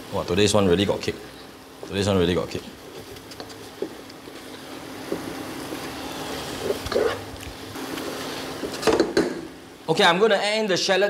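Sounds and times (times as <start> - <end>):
paste sizzling in oil: 2.8 - 8.8.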